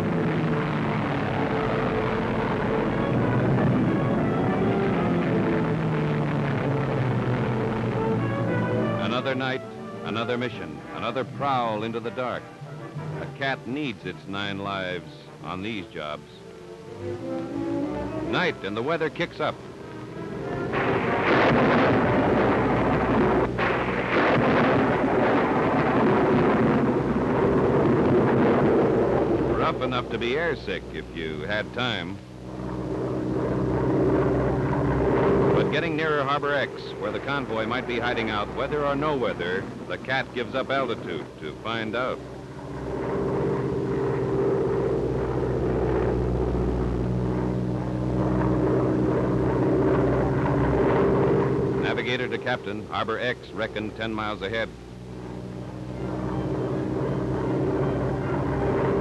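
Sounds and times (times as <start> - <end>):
low drone of aircraft engines: 0.0 - 59.0
rushing wind noise: 19.6 - 59.0.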